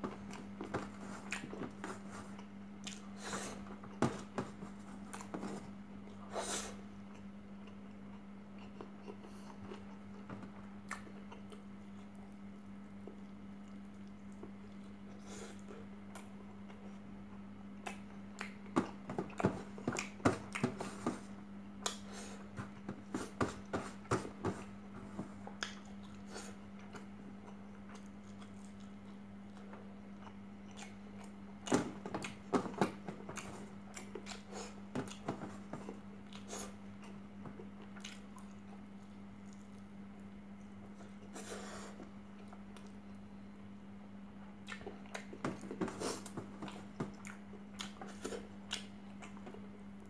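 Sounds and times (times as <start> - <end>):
steady low hum: 0.0 - 50.0
chewing and mouth clicks: 1.2 - 1.6, 25.5 - 31.4, 36.2 - 39.8, 44.6 - 45.4, 47.1 - 49.6.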